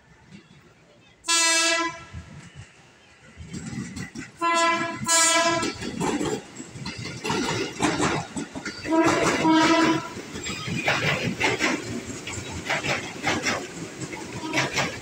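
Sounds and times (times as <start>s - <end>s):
train rumbling: 0.0s - 15.0s
train horn blasts: 1.2s - 2.3s, 4.4s - 5.8s, 8.8s - 10.2s, 14.3s - 14.9s.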